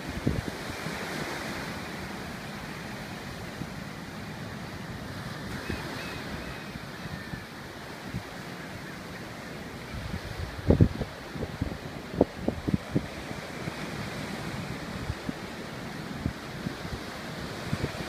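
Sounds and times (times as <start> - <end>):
wind thumping on microphone: 0.0 - 0.8, 10.0 - 13.2
sea surf washing in: 0.0 - 18.0.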